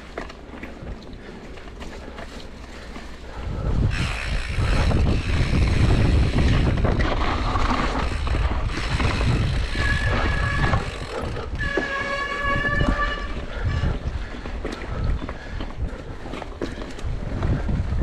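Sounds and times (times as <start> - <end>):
bike tyre and frame rattle: 0.0 - 18.0
wind rumble on microphone: 3.3 - 18.0
high ringing tone from bike: 11.6 - 13.4.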